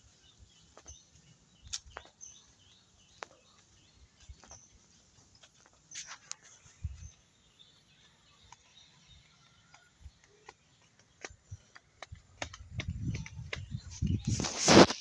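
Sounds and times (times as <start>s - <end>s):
footsteps on dirt path: 0.6s - 7.1s, 7.9s - 15.0s.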